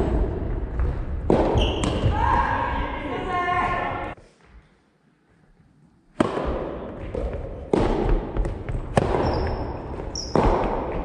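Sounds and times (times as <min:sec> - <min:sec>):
ball struck by rackets: 0:00.0 - 0:02.1, 0:06.2 - 0:11.0.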